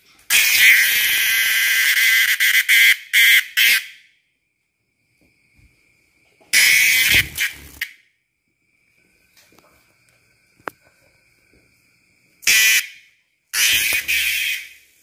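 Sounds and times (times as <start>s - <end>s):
cicada buzzing: 0.3s - 4.1s, 6.5s - 8.1s, 12.0s - 15.0s.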